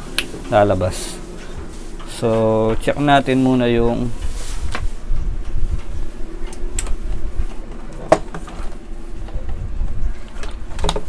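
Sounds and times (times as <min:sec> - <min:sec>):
light clicks and knocks of cords: 0:00.1 - 0:11.0
microphone handling rumble: 0:00.4 - 0:11.0.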